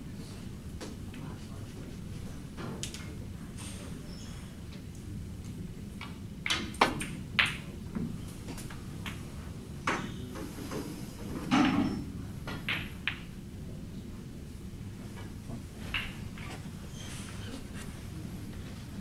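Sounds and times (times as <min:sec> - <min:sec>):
snooker balls knocking: 0:11.5 - 0:13.3, 0:15.9 - 0:16.4.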